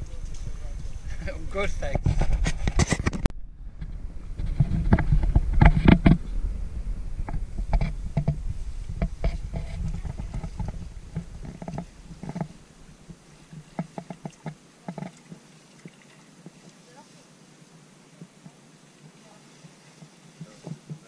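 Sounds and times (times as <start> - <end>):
low microphone rumble: 0.0 - 13.9
paddles knocking against canoe hull: 7.2 - 16.8, 18.1 - 21.0.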